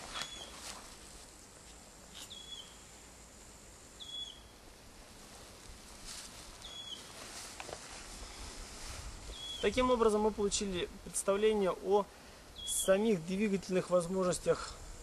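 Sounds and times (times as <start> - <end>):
faint rustles: 0.0 - 2.6, 5.1 - 10.2.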